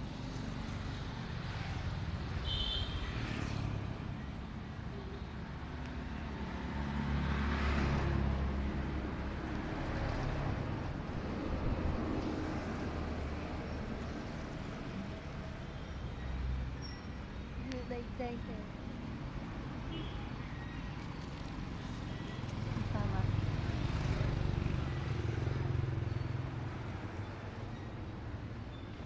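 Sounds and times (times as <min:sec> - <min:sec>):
road traffic rumble: 0:00.0 - 0:29.0
vehicle passing: 0:06.0 - 0:15.2.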